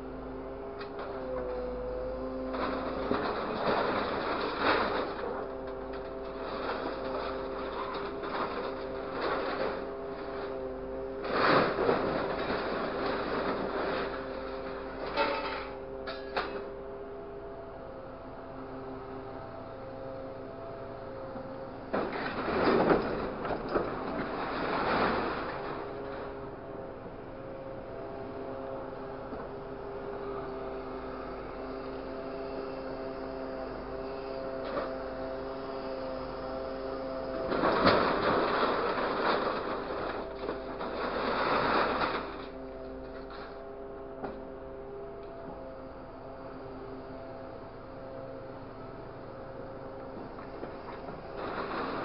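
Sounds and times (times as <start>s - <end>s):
truck engine humming: 0.0s - 52.0s
scrap metal sheets clanking: 15.0s - 16.6s.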